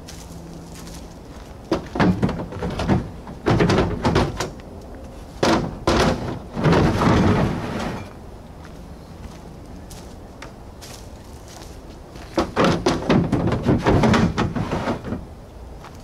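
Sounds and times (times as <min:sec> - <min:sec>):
crates scraping: 0:01.6 - 0:08.2, 0:12.2 - 0:15.4
plastic crates clattering: 0:01.7 - 0:04.5, 0:05.4 - 0:08.1, 0:12.3 - 0:15.3.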